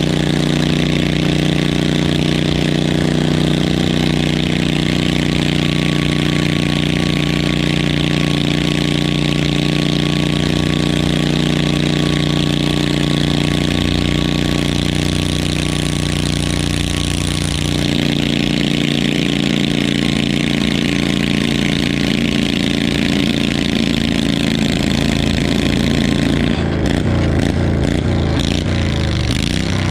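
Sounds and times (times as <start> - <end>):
garden tractor engine under load: 0.0 - 29.9.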